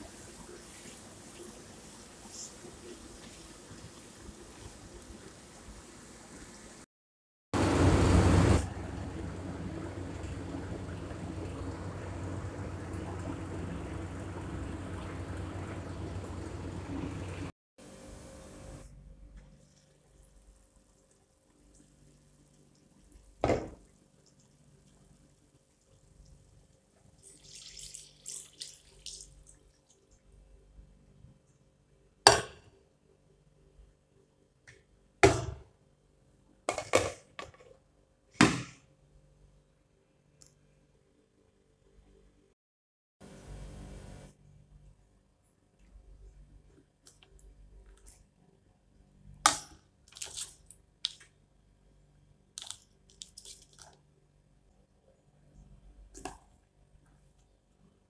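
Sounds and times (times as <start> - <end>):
water hissing in hot pan: 0.0 - 6.8
sharp kitchen knock: 32.3 - 32.6, 35.2 - 35.7, 38.4 - 38.8.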